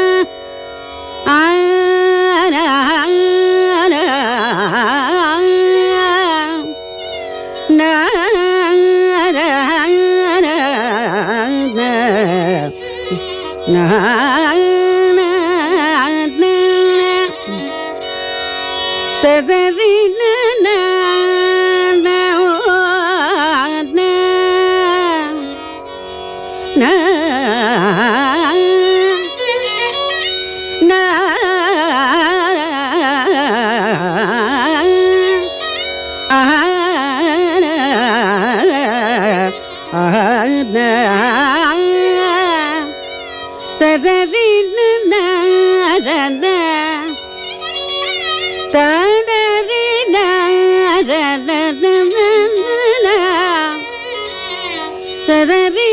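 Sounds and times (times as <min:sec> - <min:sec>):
ornamented vocal melody: 0:00.0 - 0:55.9
steady drone: 0:11.2 - 0:21.6, 0:24.0 - 0:30.9, 0:44.8 - 0:55.9.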